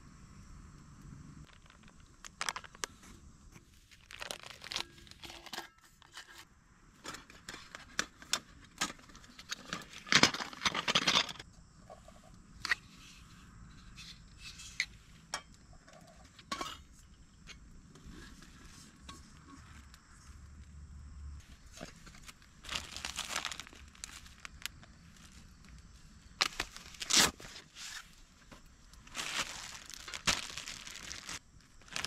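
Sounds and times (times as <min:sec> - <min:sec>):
metal cups clinking and clattering: 0:16.5 - 0:17.0.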